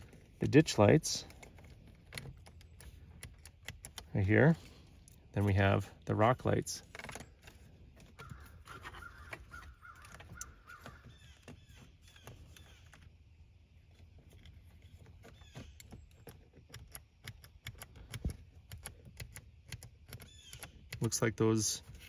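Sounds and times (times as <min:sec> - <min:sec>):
plastic clicks and scrapes: 0:06.8 - 0:13.1.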